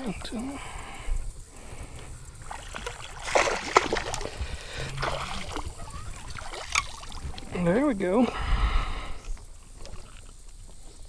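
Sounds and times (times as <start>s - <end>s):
water splashing: 2.3s - 8.2s.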